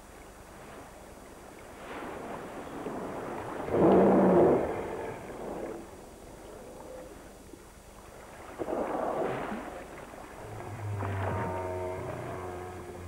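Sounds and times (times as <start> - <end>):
choppy water: 0.0 - 13.0
wind: 0.0 - 13.0
low steady drone: 2.7 - 13.0.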